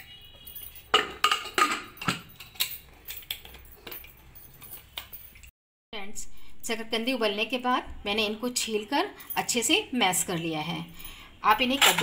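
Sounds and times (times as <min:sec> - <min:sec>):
metal pot lid clinking and knocking: 0:00.9 - 0:02.7.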